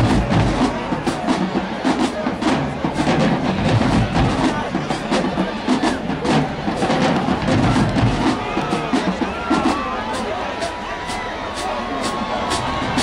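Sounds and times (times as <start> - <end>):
crowd voices: 0.0 - 13.0
marching drumline playing: 0.0 - 13.0.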